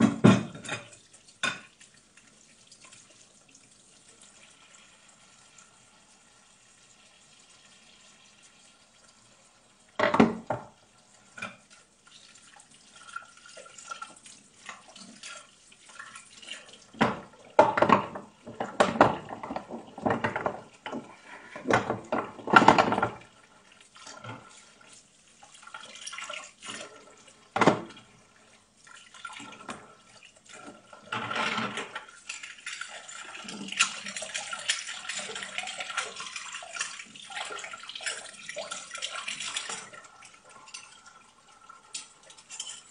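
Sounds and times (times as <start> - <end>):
dishes clattering: 0.0 - 1.7, 10.0 - 10.7, 17.0 - 23.2, 27.6 - 28.0, 31.1 - 32.9, 38.0 - 41.2, 41.9 - 42.9.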